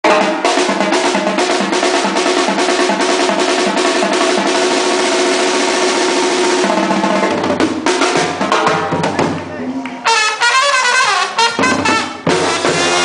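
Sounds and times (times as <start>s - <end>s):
drums steady beat: 0.0s - 13.0s
brass band chord: 10.0s - 13.0s.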